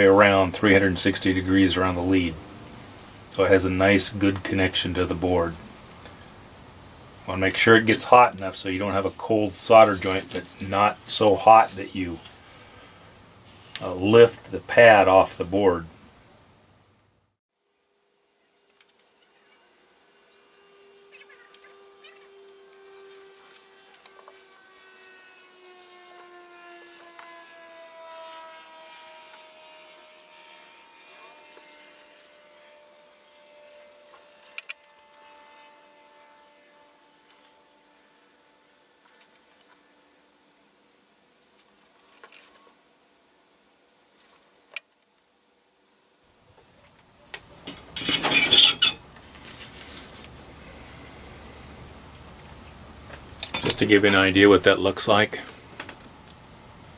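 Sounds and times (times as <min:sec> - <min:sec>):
faint droning engine: 0:00.0 - 0:03.6, 0:19.7 - 0:40.5, 0:47.7 - 0:56.9
metal tools clinking on workbench: 0:47.7 - 0:49.0, 0:53.4 - 0:53.8.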